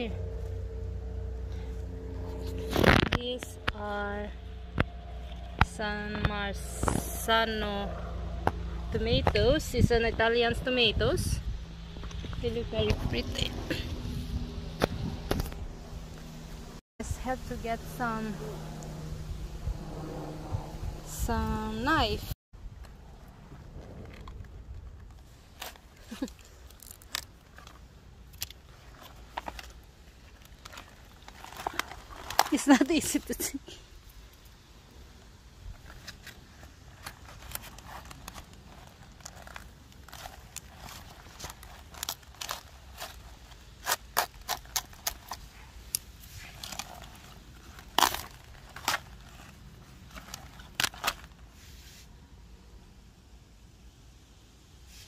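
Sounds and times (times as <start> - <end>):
cabbage leaves snapping: 35.9 - 51.4.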